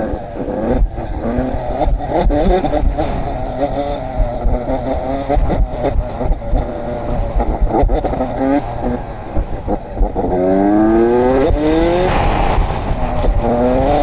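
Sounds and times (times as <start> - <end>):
small engine revving: 0.0 - 14.0
wind buffeting the microphone: 11.3 - 14.0.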